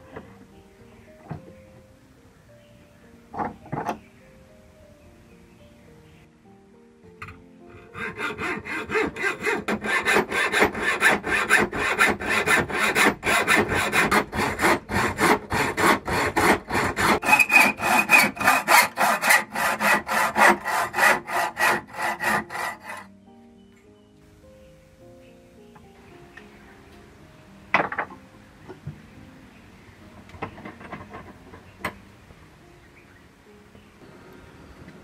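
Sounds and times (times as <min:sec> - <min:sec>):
background music: 0:00.0 - 0:35.0
hacksaw cutting steel rod: 0:07.9 - 0:23.1.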